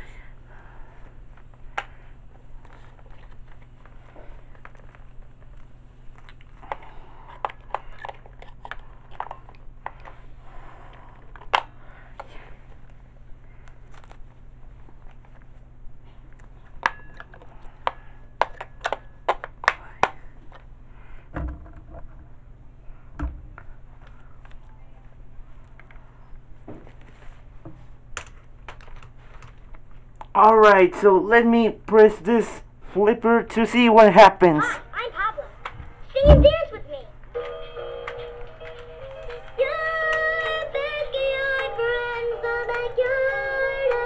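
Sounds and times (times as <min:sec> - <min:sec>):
dull thumps: 0:35.8 - 0:36.7.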